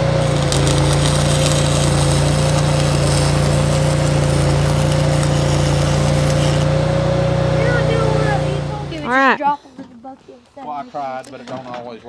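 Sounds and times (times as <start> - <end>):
welding arc crackling: 0.0 - 7.0
welder generator engine drone: 0.0 - 9.2.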